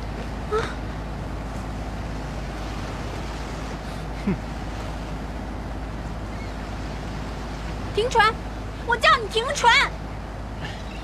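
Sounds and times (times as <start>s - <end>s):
boat engine running: 0.0s - 11.0s
wind and water noise: 0.0s - 11.0s.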